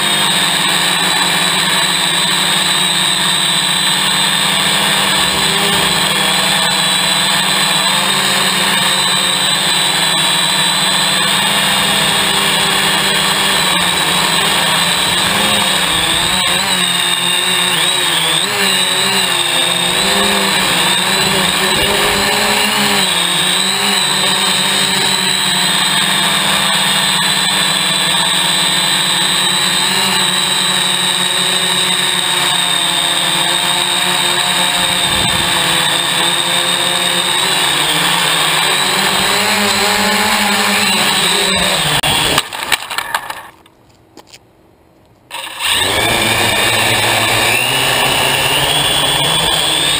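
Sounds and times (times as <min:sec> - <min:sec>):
drone motors whining: 0:00.0 - 0:43.6, 0:45.3 - 0:49.9.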